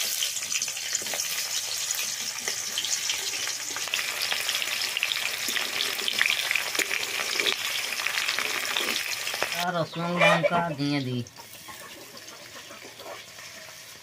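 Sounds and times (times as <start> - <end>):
onions sizzling in hot oil: 0.0 - 9.9, 11.2 - 14.0
metal spatula stirring: 11.7 - 14.0.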